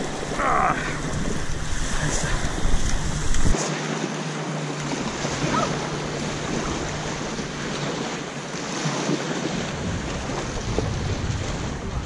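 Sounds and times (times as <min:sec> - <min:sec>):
lake waves washing ashore: 0:00.0 - 0:12.0
wind noise on microphone: 0:08.9 - 0:12.0.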